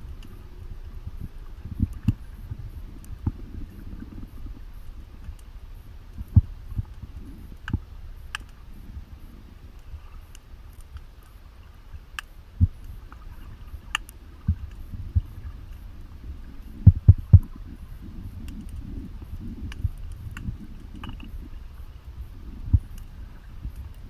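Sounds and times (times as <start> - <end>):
low underwater rumble: 0.0 - 24.0
faint sharp clicks: 4.3 - 5.5, 6.1 - 8.6, 9.8 - 11.4, 12.1 - 14.9, 18.4 - 18.9, 19.6 - 21.4, 22.7 - 23.1.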